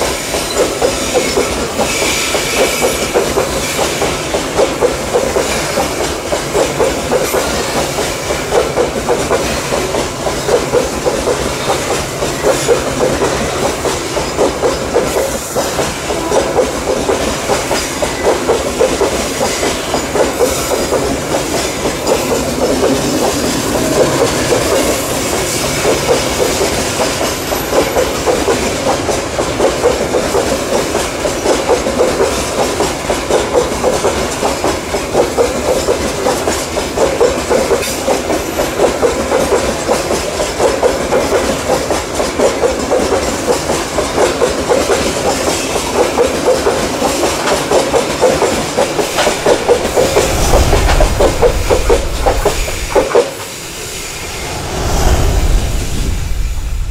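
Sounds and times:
freight train wheels clattering on rails: 0.0s - 56.9s
deep rumble: 49.3s - 56.9s.

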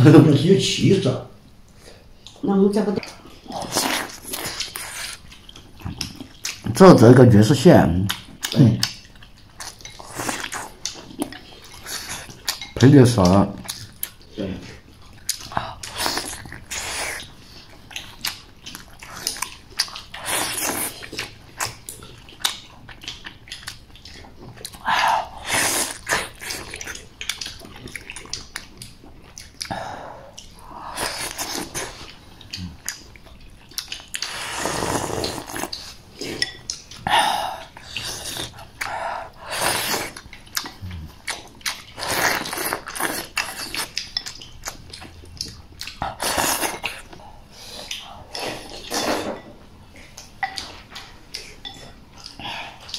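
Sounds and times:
chewing: 3.0s - 52.9s
slurping hot broth: 34.2s - 35.9s.

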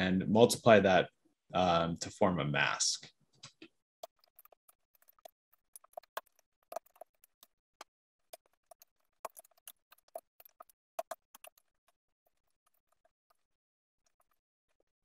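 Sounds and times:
keyboard typing: 4.0s - 7.5s, 8.2s - 13.4s.

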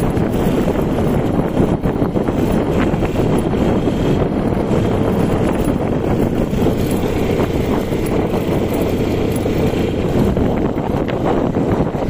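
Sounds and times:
dirt bike engine running: 0.0s - 12.0s
wind on microphone: 0.0s - 12.0s.

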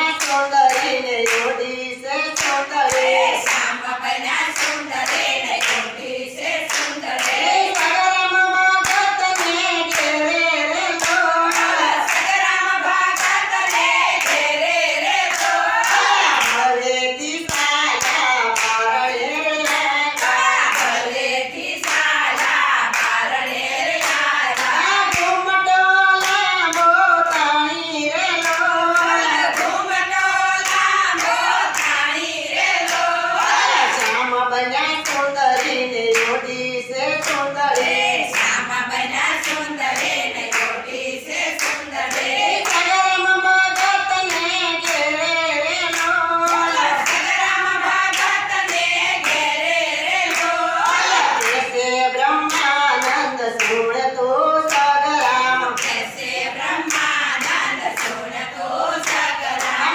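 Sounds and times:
rhythmic hand-clapping: 0.0s - 59.9s
women singing devotional song: 0.0s - 59.9s.

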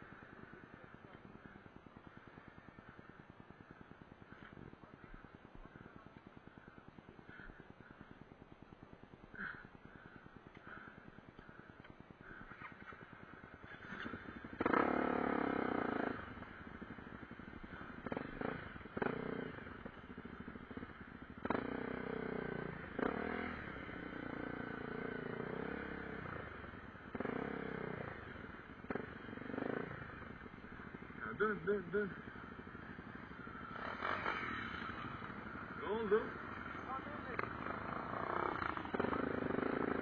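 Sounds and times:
bike rattling over bumps: 0.0s - 22.3s, 26.4s - 40.0s
motorcycle engine revving: 0.0s - 40.0s.

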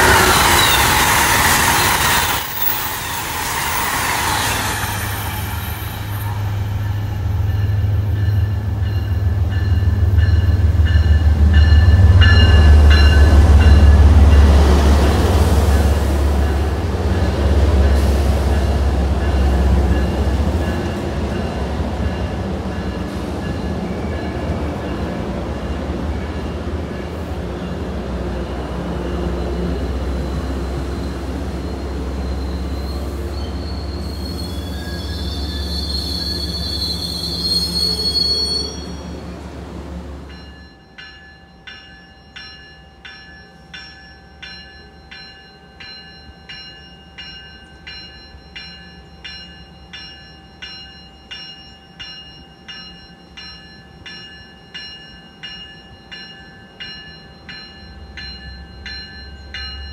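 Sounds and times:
high wheel squeal: 0.0s - 7.1s, 29.4s - 39.2s
train coaches rolling past: 0.0s - 59.9s
bell ringing steadily: 6.7s - 14.6s, 40.3s - 59.9s.

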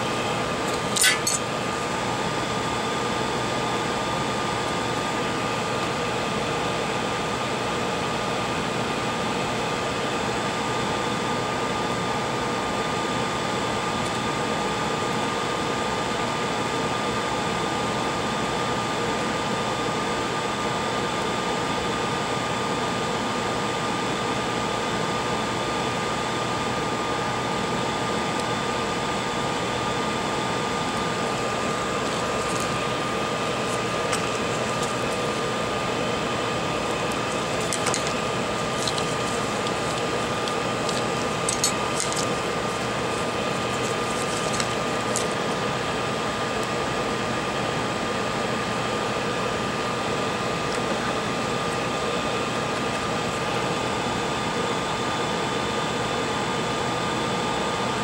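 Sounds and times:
fan rushing air: 0.0s - 7.9s, 26.3s - 55.9s
metallic clink: 0.7s - 1.4s
faint constant whine: 19.0s - 58.0s.

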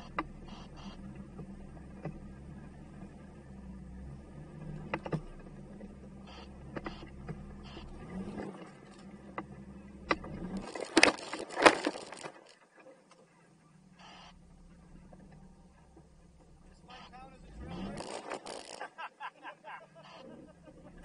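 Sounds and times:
vehicle engine running low: 0.0s - 21.0s
scrabbling and crunching on rock: 10.2s - 12.8s.

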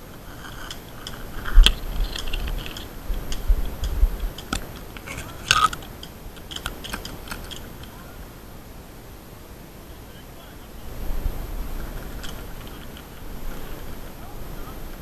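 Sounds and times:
crunching and crackling: 0.0s - 8.0s, 11.6s - 14.2s
sharp clicks: 0.0s - 8.0s.

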